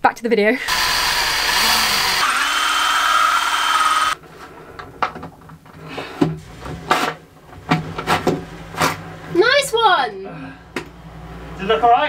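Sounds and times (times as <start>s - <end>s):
power drill cutting wood: 0.6s - 4.2s.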